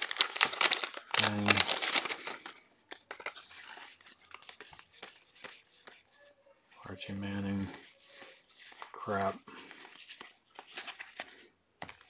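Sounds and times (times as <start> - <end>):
cardboard cards clicking: 0.0 - 6.0
waxed paper wrapper crinkling: 0.0 - 6.4, 7.0 - 12.0.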